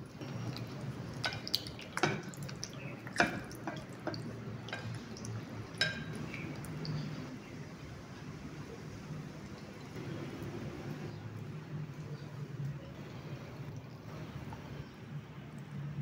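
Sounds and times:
liquid drips and plops: 0:00.0 - 0:07.4
clinks in a glass bowl: 0:05.8 - 0:06.4.

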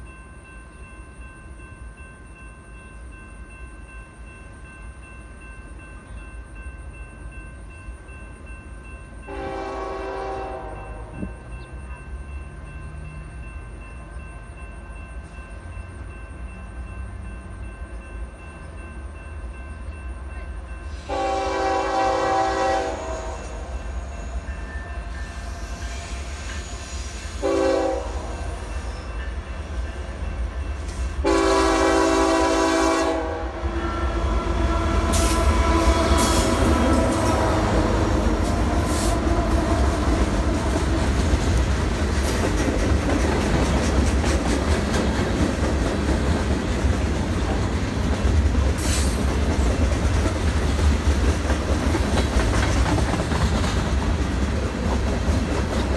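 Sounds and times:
locomotive horn blasts: 0:09.3 - 0:11.3, 0:21.0 - 0:23.8, 0:27.4 - 0:28.5, 0:31.2 - 0:39.8
locomotives passing: 0:33.4 - 0:55.9
freight cars rumbling: 0:33.5 - 0:55.9
wheels clacking over rail joints: 0:35.0 - 0:55.9.

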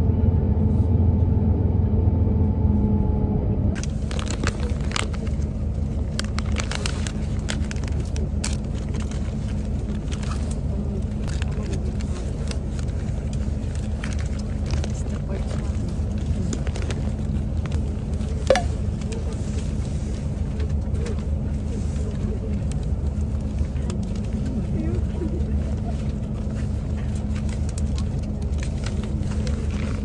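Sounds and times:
bus interior rumble: 0:00.0 - 0:30.0
plastic wrapper crinkling: 0:03.8 - 0:19.1.

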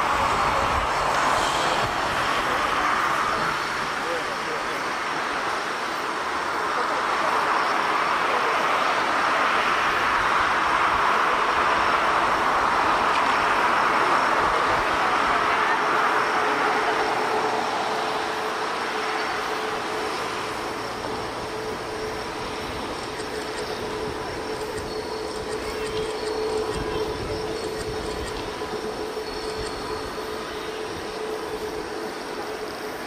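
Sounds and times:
jet airliner passing: 0:00.0 - 0:33.0
steady hum: 0:00.0 - 0:33.0.

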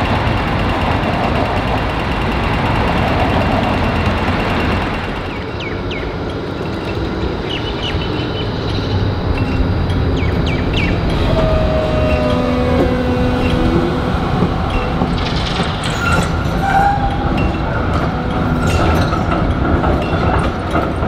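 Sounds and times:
wheels clicking over points: 0:00.0 - 0:08.0
steel wheels squealing: 0:00.0 - 0:21.0
tram rumbling: 0:00.0 - 0:21.0.

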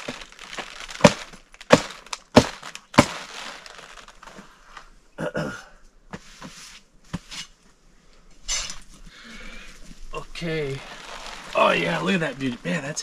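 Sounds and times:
cabbage stalk crunching: 0:00.0 - 0:04.3, 0:10.7 - 0:12.6
cabbage leaves rustling: 0:00.0 - 0:04.4, 0:10.4 - 0:13.0.

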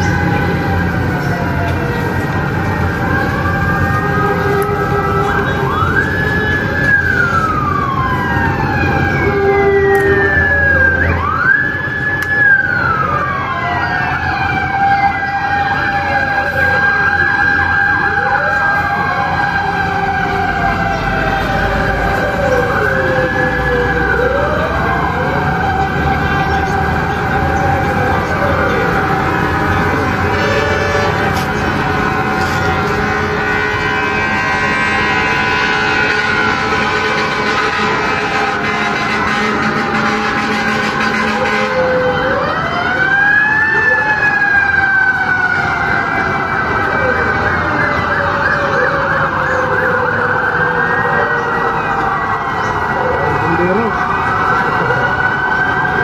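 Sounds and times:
siren wailing: 0:00.0 - 0:56.0.

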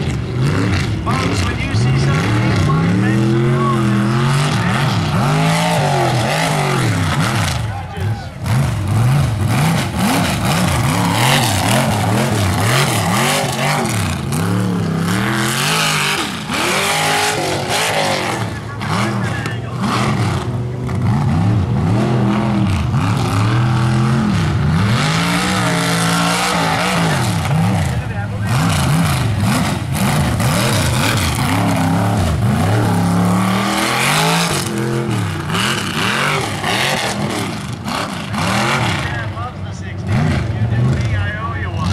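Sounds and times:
truck engine revving: 0:00.0 - 0:41.9
tyres spinning through dirt: 0:00.0 - 0:41.9.

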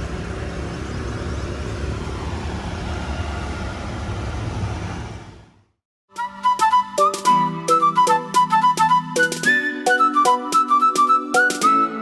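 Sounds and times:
road traffic rumble: 0:00.0 - 0:05.8.

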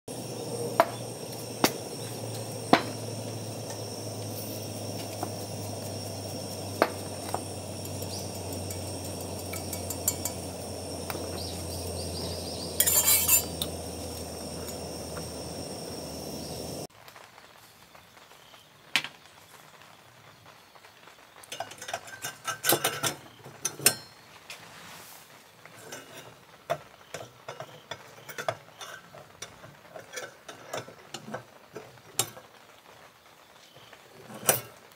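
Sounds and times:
steady low hum and hiss: 0:00.1 - 0:16.9
metal utensils clinking: 0:04.4 - 0:15.3, 0:21.5 - 0:24.1, 0:25.8 - 0:26.4, 0:27.1 - 0:31.5.

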